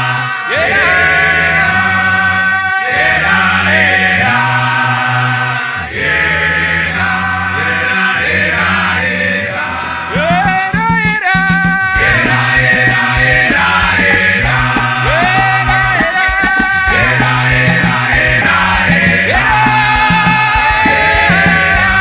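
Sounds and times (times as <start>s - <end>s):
male vocal group singing in harmony: 0.0s - 22.0s
short percussive hits: 9.0s - 22.0s.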